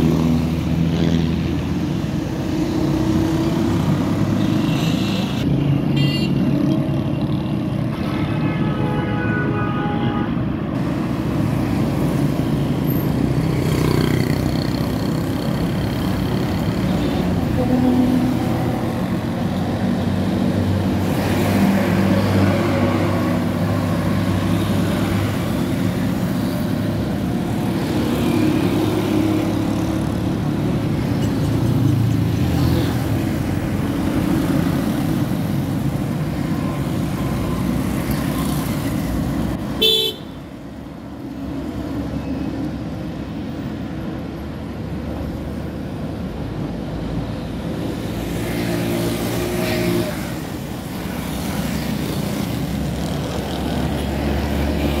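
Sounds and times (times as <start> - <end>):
road traffic passing: 0.0 - 55.0
car horn toot: 39.8 - 40.4.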